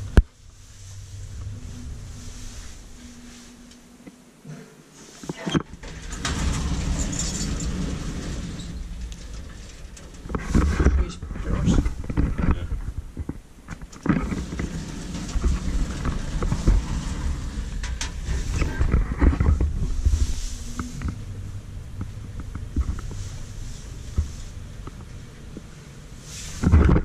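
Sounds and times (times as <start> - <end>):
elevator rumbling upward: 0.0 - 4.0, 5.6 - 12.5, 13.9 - 26.2
elevator doors sliding shut: 5.3 - 12.0, 13.8 - 21.5.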